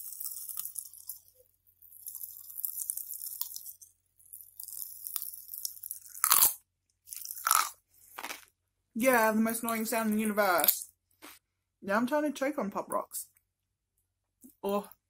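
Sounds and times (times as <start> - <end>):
popping candy crackling: 0.0 - 11.0.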